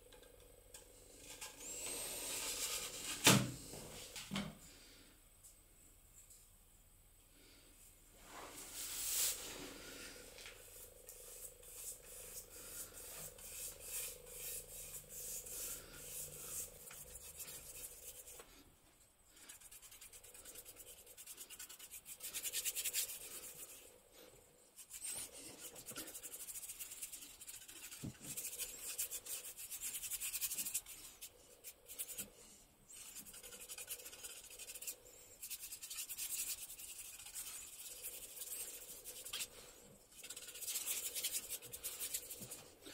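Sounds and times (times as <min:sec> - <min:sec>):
paintbrush strokes on wood: 0:08.2 - 0:18.7, 0:19.3 - 0:42.9.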